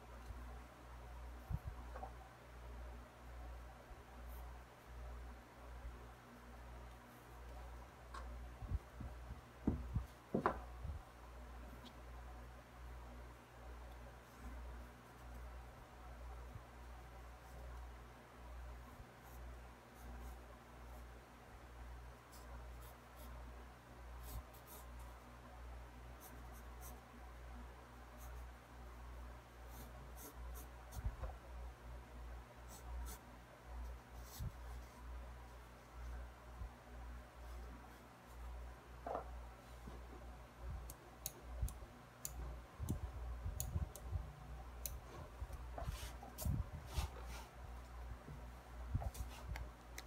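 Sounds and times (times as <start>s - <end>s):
steady low hum: 0.0s - 50.0s
soft bump: 9.6s - 10.6s
pencil ticking on paper: 40.8s - 45.6s.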